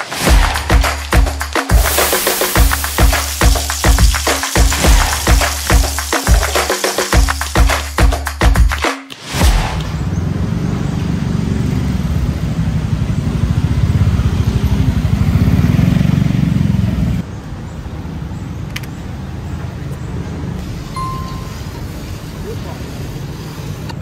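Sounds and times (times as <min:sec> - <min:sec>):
street noise: 0:00.0 - 0:24.0
click: 0:18.7 - 0:18.9.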